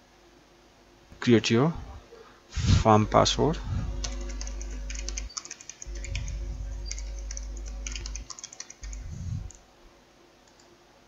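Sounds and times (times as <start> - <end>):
computer keyboard key clicks: 4.0 - 6.3, 6.9 - 9.6.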